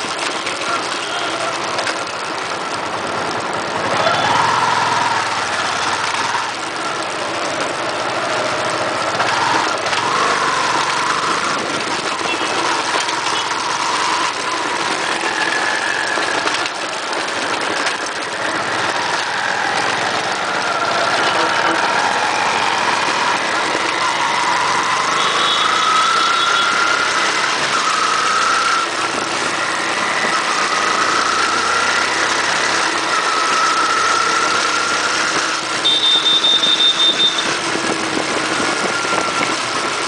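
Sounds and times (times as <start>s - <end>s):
motorcycle engine revving: 0.0s - 40.0s
wind and road noise: 0.0s - 40.0s.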